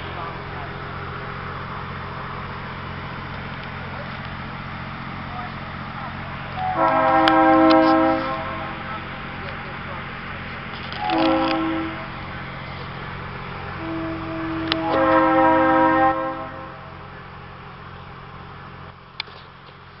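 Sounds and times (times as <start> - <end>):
low engine hum: 0.0 - 20.0
train horn blasts: 6.6 - 9.2, 11.0 - 12.6, 13.6 - 17.1.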